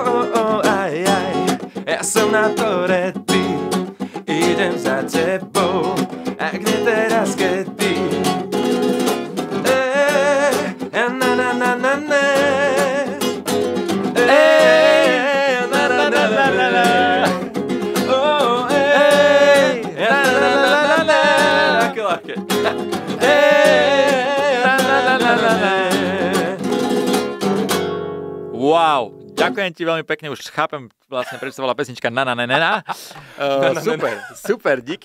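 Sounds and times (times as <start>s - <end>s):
man singing: 0.0s - 8.6s, 9.4s - 13.4s, 14.0s - 26.9s, 33.5s - 34.4s
acoustic guitar strumming: 0.0s - 29.8s.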